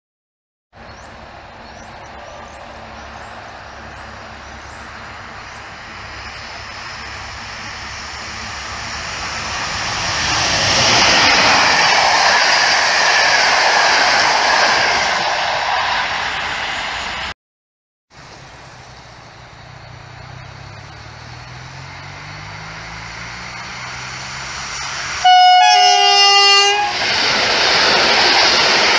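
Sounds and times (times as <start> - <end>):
train wheels rumbling on rails: 0.8 - 17.3, 18.2 - 28.9.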